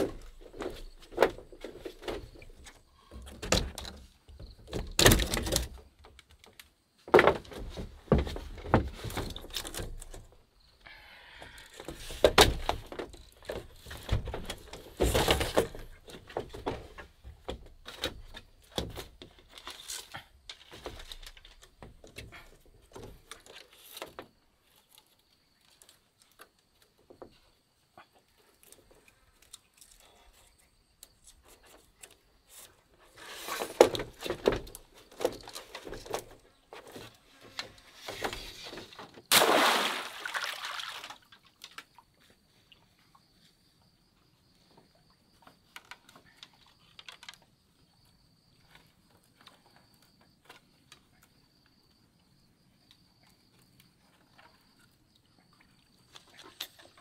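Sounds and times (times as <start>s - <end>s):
splash into river: 39.3s - 41.2s.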